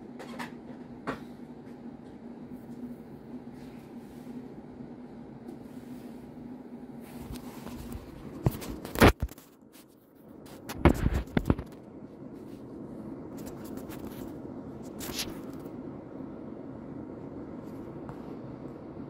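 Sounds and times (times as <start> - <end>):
steady low hum: 0.0 - 19.0
hand knocking and rubbing camera: 10.5 - 11.8.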